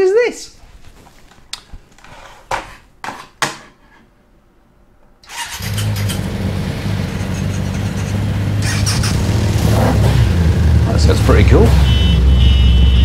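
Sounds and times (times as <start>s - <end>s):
motorcycle engine running: 5.6s - 12.2s.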